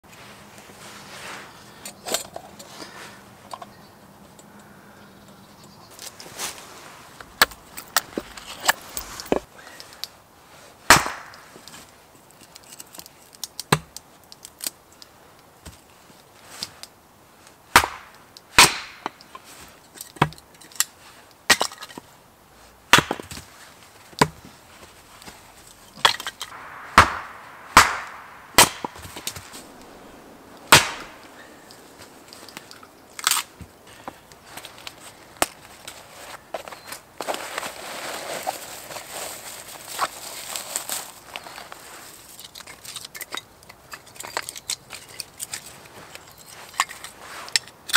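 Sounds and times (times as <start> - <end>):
axe splitting firewood: 10.9 - 11.6, 13.6 - 14.0, 17.7 - 19.2, 22.8 - 24.6, 25.9 - 34.3.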